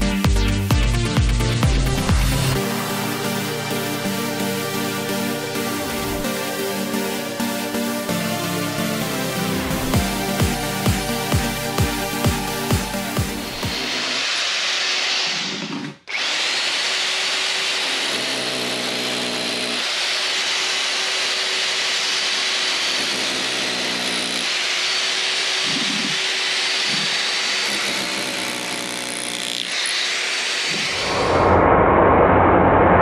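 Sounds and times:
hammer drill chipping concrete: 1.8s - 7.3s, 9.4s - 31.1s.

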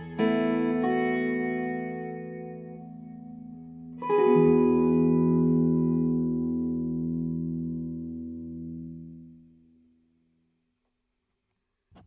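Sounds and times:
electric guitar chord ringing: 0.0s - 9.5s.

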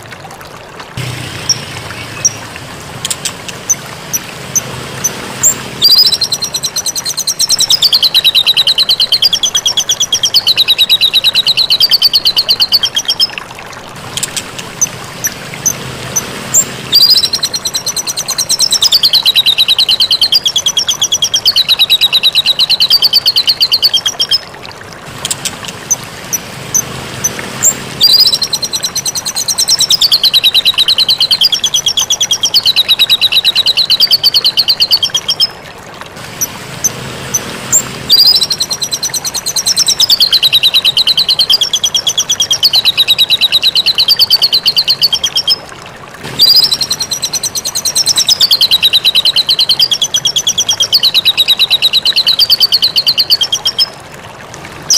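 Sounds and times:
bird singing rapid trills: 1.0s - 13.4s, 14.0s - 24.5s, 25.2s - 35.6s, 36.4s - 45.6s, 46.3s - 53.9s
bird chips: 3.0s - 13.4s, 14.0s - 24.4s, 25.1s - 35.4s, 46.3s - 50.4s.

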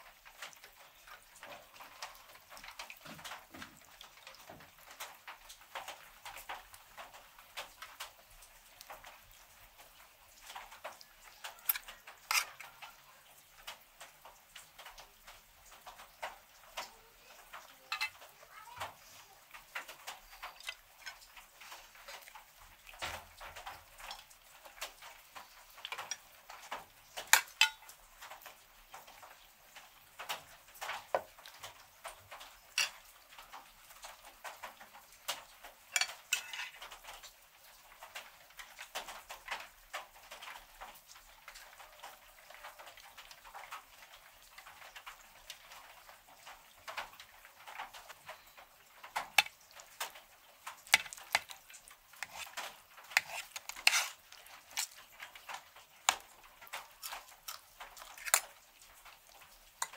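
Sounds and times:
cutlery scraping metal platter: 11.6s - 12.7s, 17.9s - 18.2s, 27.3s - 27.9s, 32.8s - 33.0s, 35.9s - 36.8s, 50.9s - 51.6s, 52.2s - 55.0s, 57.0s - 58.4s
chewing and smacking: 44.6s - 59.9s.

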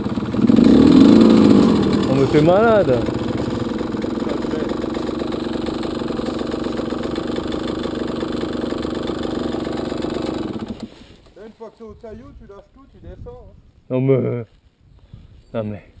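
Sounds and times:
motorcycle engine idling: 0.0s - 10.9s.

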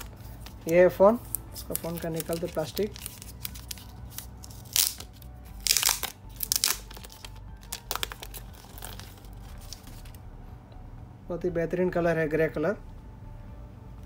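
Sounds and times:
plastic wrap crinkling: 0.0s - 10.2s.

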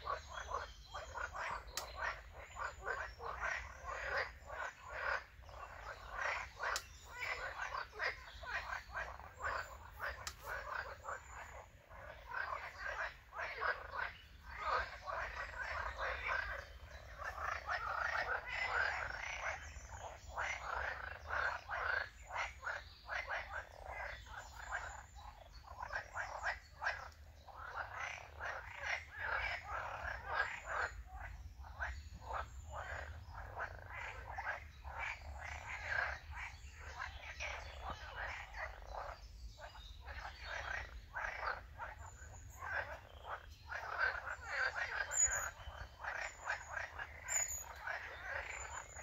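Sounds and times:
chorus of frogs croaking: 0.0s - 49.0s.

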